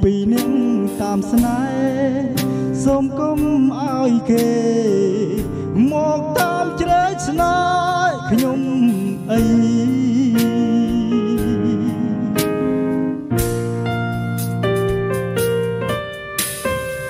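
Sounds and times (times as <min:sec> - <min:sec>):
man singing into microphone: 0:00.0 - 0:12.8
backing track with steady beat: 0:00.0 - 0:17.0.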